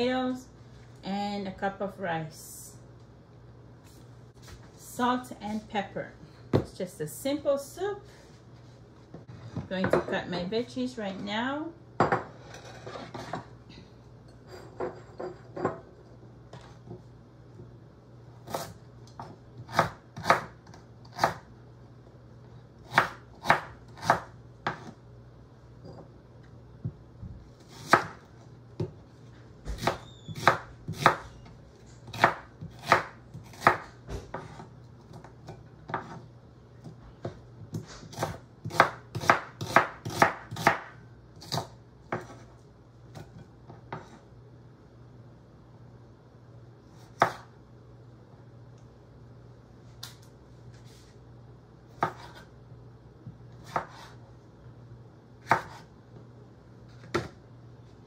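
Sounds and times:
knife chopping on wooden board: 18.5 - 21.4, 22.9 - 25.0, 27.6 - 28.2, 29.7 - 31.2, 32.0 - 36.2, 36.8 - 42.5, 43.1 - 44.2, 47.2 - 47.5, 52.0 - 52.4, 53.6 - 54.2, 55.4 - 55.9.

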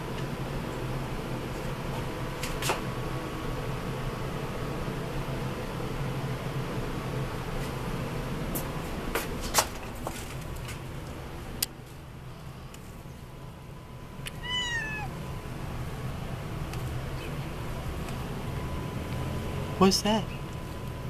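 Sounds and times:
cat meowing: 14.3 - 15.2.

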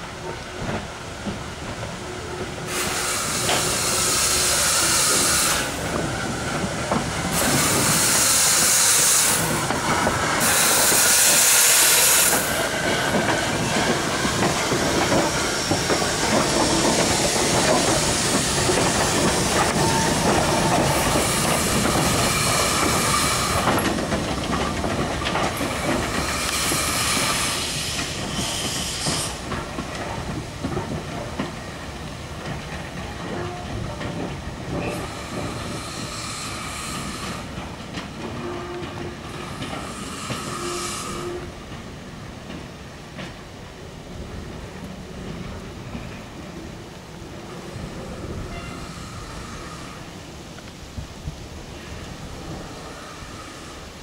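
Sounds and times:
steam hissing: 0.1 - 42.2, 47.3 - 54.0
locomotive wheels clattering: 3.4 - 43.6.

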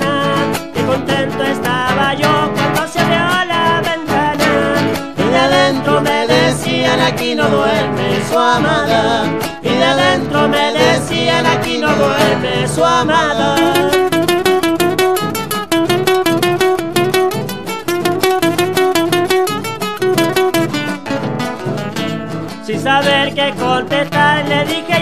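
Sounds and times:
voices singing: 0.0 - 14.3, 22.7 - 25.0
acoustic guitars strumming: 0.0 - 25.0.

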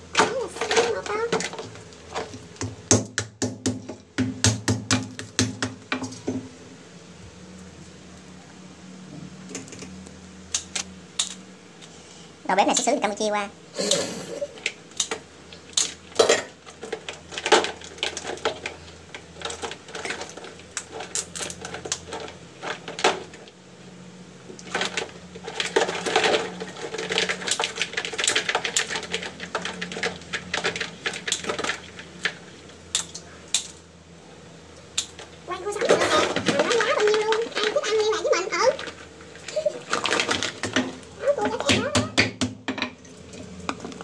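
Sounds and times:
crab shells clicking and scraping: 9.6 - 12.0, 14.4 - 23.6, 24.5 - 33.9, 34.7 - 41.7.

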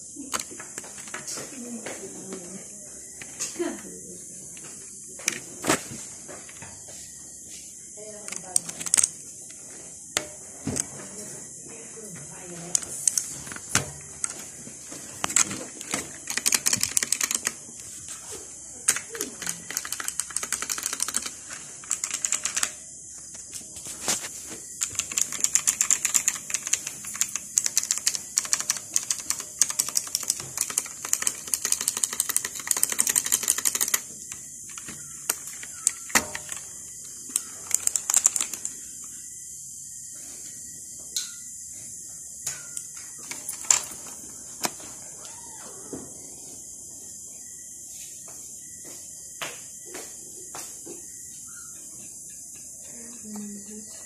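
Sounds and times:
mechanical keyboard typing: 8.2 - 9.2, 15.2 - 17.9, 18.8 - 22.8, 24.8 - 38.8.

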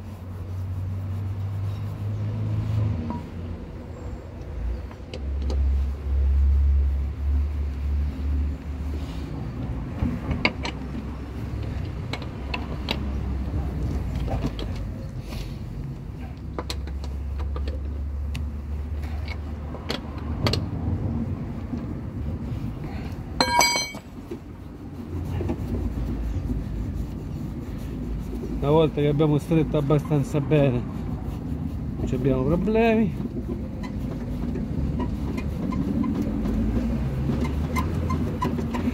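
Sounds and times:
lug wrench clicking on bolts: 10.3 - 10.9
steel bar clanging on asphalt: 23.4 - 24.2.

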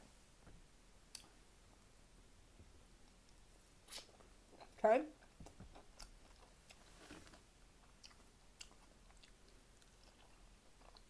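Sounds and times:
wet mouth clicks: 3.9 - 4.2
close-up chewing: 5.4 - 11.0.

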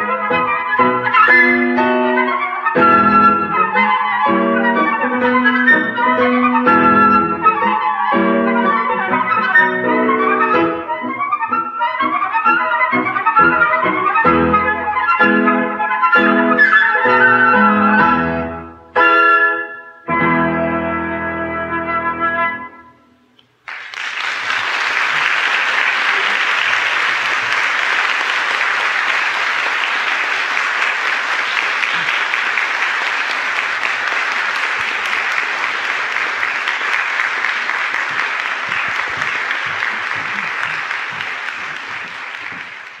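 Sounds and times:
flutes and piano chord: 0.2 - 23.0
audience applauding: 23.6 - 43.0.

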